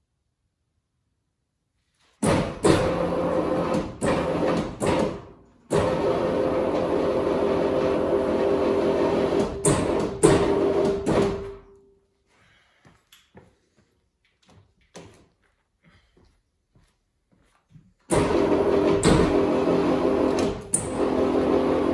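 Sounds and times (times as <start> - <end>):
hydraulic pump motor humming: 2.3 - 11.4, 18.1 - 21.9.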